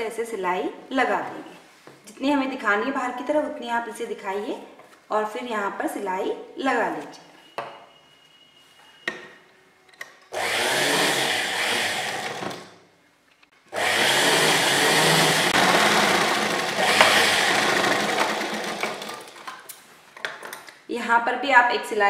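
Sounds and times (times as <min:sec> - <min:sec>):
sewing machine stitching: 0:10.3 - 0:12.8, 0:13.7 - 0:19.6.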